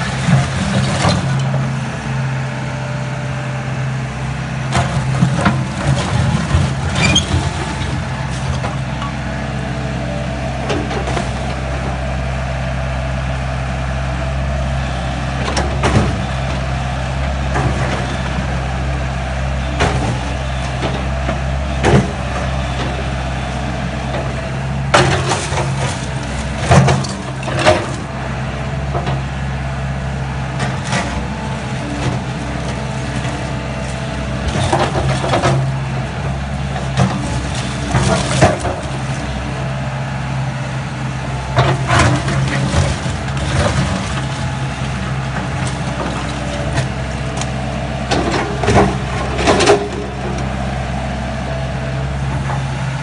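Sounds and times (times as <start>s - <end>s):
excavator diesel engine running: 0.0s - 53.0s.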